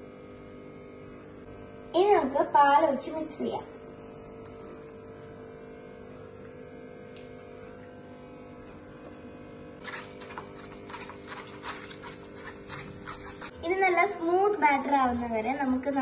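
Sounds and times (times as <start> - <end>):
electrical hum: 0.0 - 16.0
spoon scraping metal bowl: 9.8 - 13.6.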